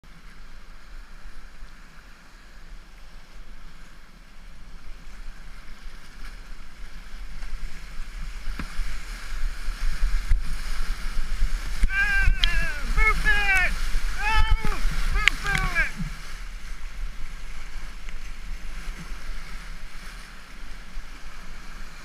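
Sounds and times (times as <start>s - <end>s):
rapids rushing: 6.5s - 22.0s
wind buffeting microphone: 7.6s - 20.0s.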